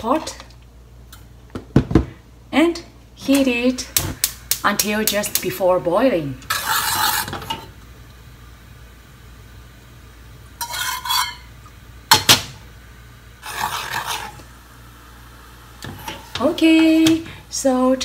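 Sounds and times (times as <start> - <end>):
spoon scraping a saucepan: 6.5 - 7.7, 10.6 - 11.5, 13.4 - 14.5.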